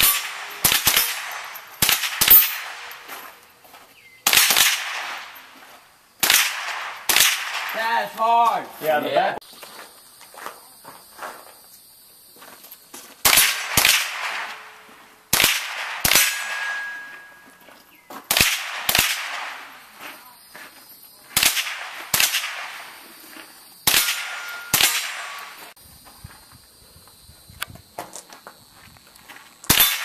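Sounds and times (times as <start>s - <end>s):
handgun shots: 0.0s - 2.9s, 6.2s - 7.8s, 15.3s - 17.3s, 23.9s - 25.6s, 29.7s - 30.0s
steel target ringing: 16.1s - 17.6s.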